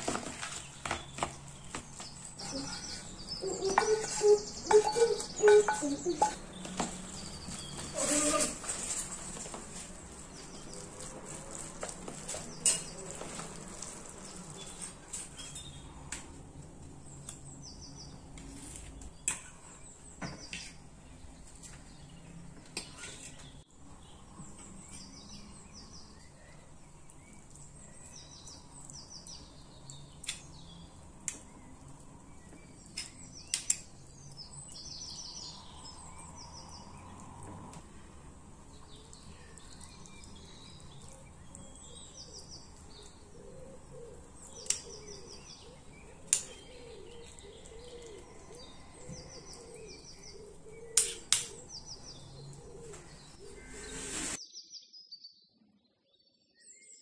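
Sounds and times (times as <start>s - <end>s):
birds chirping faintly: 0.0s - 57.0s
spoons scraping bowl: 2.4s - 15.8s, 53.4s - 54.4s
spoon on metal baking tray: 3.6s - 6.5s, 12.4s - 13.4s.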